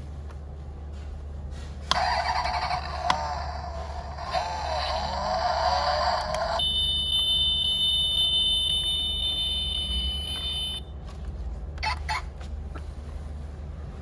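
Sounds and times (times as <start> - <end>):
high electronic tone: 6.6 - 10.8.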